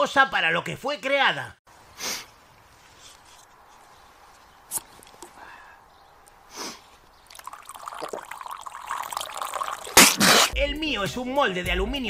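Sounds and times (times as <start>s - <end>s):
man sniffing: 2.0s - 2.4s, 6.5s - 6.9s, 10.0s - 10.6s.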